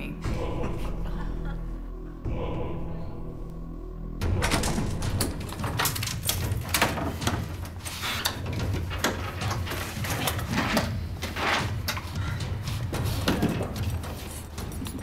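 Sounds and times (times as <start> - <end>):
rummaging knocks and rustles: 4.4 - 15.0.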